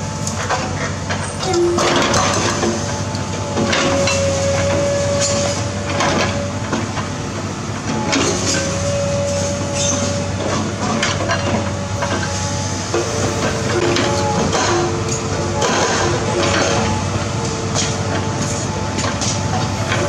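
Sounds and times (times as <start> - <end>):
excavator diesel engine running: 0.0 - 20.0.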